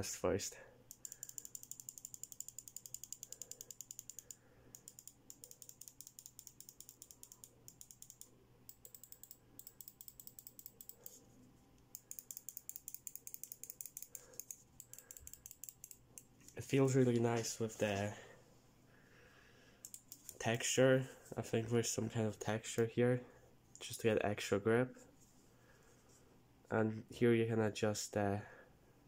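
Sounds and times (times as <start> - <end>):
mouse clicking: 0.9 - 11.2, 11.8 - 16.6, 19.8 - 20.4.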